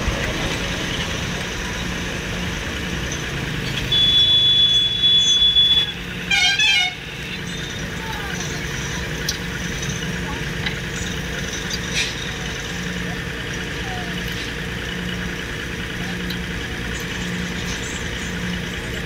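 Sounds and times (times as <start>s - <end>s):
crane engine rumble: 0.0s - 19.0s
short wavering horn toot: 3.8s - 7.5s.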